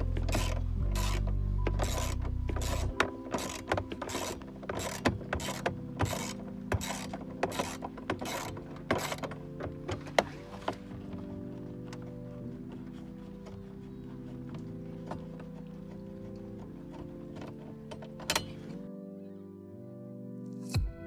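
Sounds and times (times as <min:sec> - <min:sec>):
ratchet wrench clicking: 0:00.2 - 0:09.3.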